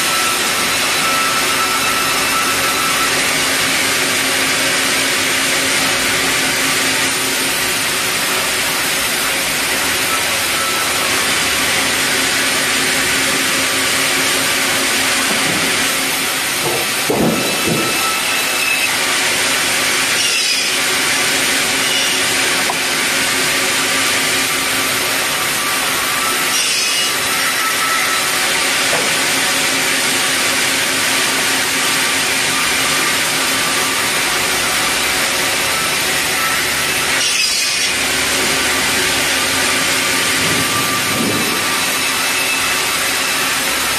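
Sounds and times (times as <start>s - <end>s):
band saw cutting wood: 0.0s - 43.9s.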